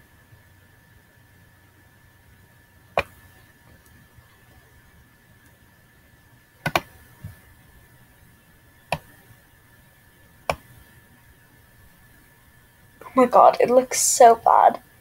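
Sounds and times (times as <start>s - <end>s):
computer mouse clicks: 6.6s - 7.0s.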